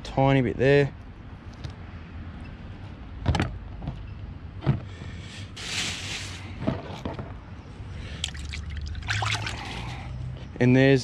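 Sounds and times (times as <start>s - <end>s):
knife scraping hiss: 5.6s - 6.5s.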